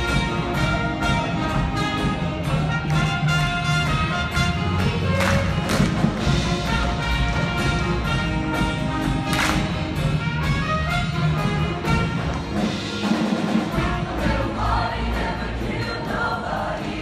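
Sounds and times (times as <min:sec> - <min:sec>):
upbeat instrumental accompaniment: 0:00.0 - 0:17.0
choir singing: 0:13.7 - 0:17.0.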